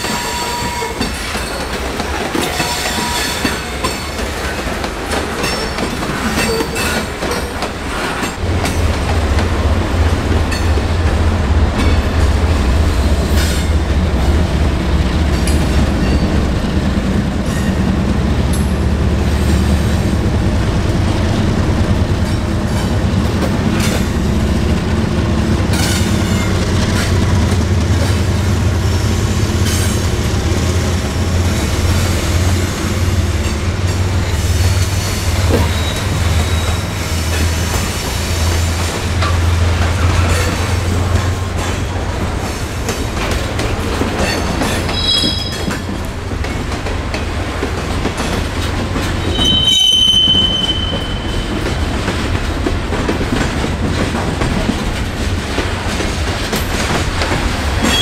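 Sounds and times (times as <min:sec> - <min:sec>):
train wheel squeal: 0:00.0 - 0:01.8, 0:02.4 - 0:04.2, 0:05.4 - 0:08.4, 0:33.4 - 0:38.1, 0:44.2 - 0:46.0, 0:49.0 - 0:51.8, 0:57.8 - 0:58.0
wheels clicking over rail joints: 0:00.0 - 0:14.5, 0:33.3 - 0:49.7, 0:50.4 - 0:58.0
deep train rumble: 0:00.0 - 0:58.0.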